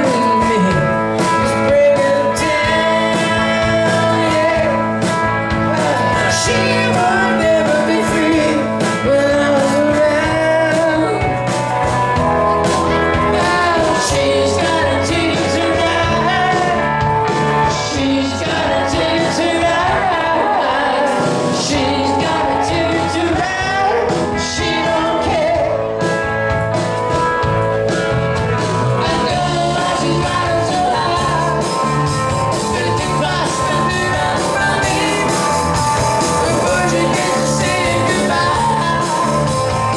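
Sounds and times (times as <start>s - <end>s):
man singing: 0.0s - 11.5s, 12.5s - 26.2s, 28.8s - 39.9s
drums: 0.0s - 39.9s
electric guitars: 0.0s - 39.9s.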